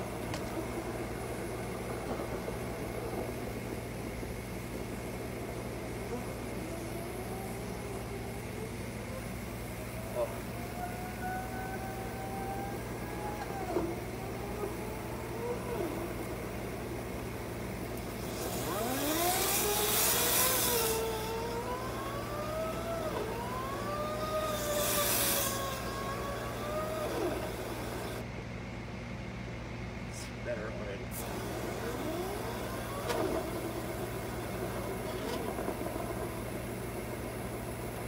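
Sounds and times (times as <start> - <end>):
wavering whine: 0.0 - 28.3, 31.2 - 38.0
compressed air hissing through hose: 18.1 - 21.2, 24.5 - 26.7.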